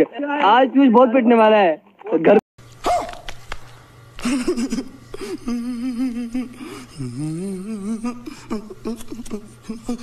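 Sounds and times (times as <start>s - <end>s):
man humming with vibrato: 4.2s - 10.0s.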